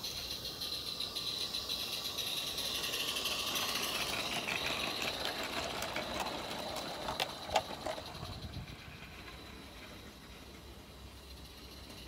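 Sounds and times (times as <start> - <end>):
steam locomotive hissing: 0.0 - 12.0
train wheels clicking on track: 0.0 - 12.0
fast mechanical patter: 1.8 - 10.4.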